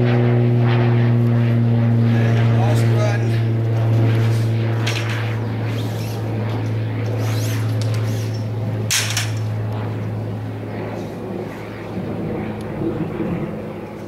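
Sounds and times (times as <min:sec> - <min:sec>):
steady low drone: 0:00.0 - 0:14.0.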